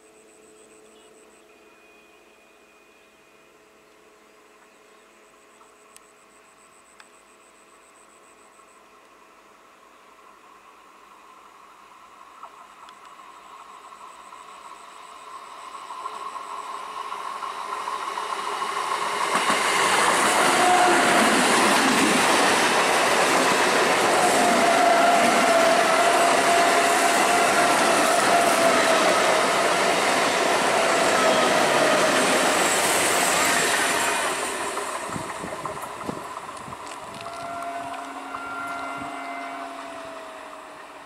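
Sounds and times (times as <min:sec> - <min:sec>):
electric train passing: 0:00.0 - 0:41.0
train whine: 0:00.0 - 0:41.0.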